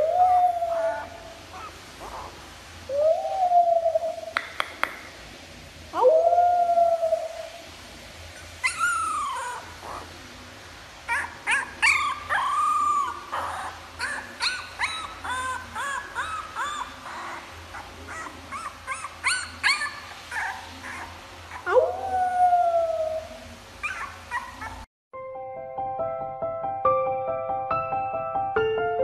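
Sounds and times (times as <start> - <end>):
puppy whimpering and yipping: 0.0 - 2.3, 8.4 - 10.1, 11.1 - 23.0, 23.8 - 24.9.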